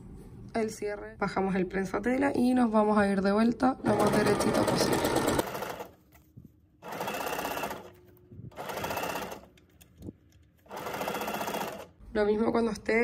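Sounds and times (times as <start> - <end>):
sewing machine running: 3.9 - 6.0, 6.8 - 9.6, 10.6 - 12.0.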